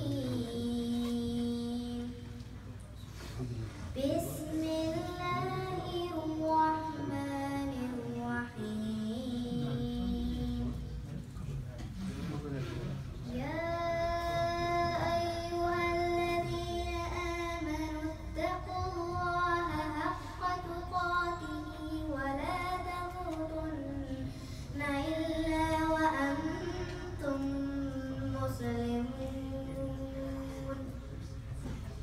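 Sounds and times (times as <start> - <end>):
girl chanting melodically: 4.0 - 10.8, 13.3 - 31.0.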